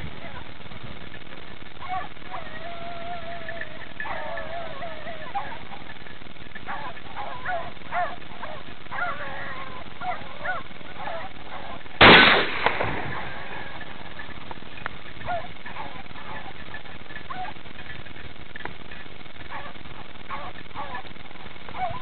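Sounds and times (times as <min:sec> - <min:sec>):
beagles baying: 0:00.0 - 0:22.0
loud shotgun shot: 0:12.0 - 0:13.6.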